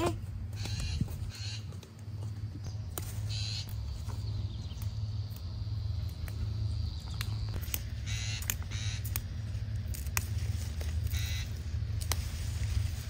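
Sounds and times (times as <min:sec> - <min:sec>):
leafy plants rustling: 0:00.0 - 0:13.0
steady low hum: 0:00.0 - 0:13.0
vegetables snapping: 0:07.1 - 0:10.4.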